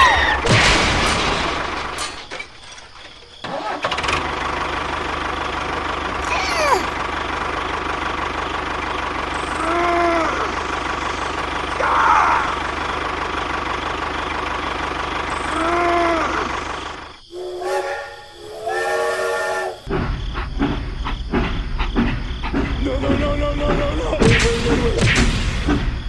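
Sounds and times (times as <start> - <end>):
low train rumble: 0.0 - 26.0
thudding: 0.4 - 3.5
multi-tone train horn blasts: 17.3 - 19.9
train whistle toots: 17.3 - 19.9.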